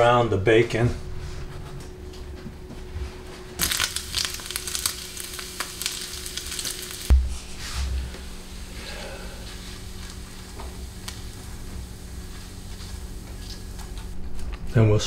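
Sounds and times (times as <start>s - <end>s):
bacon sizzling in a frying pan: 3.6s - 7.1s, 8.2s - 14.1s.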